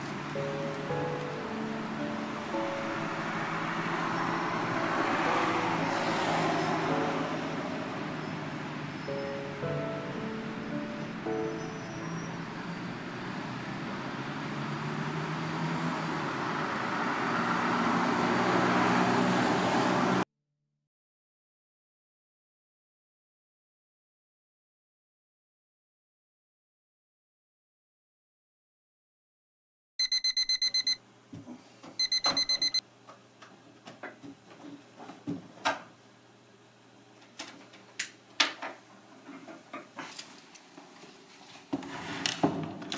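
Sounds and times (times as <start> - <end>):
road traffic rush: 0.0 - 20.3
alarm clock beeping: 30.0 - 31.0, 32.0 - 32.8.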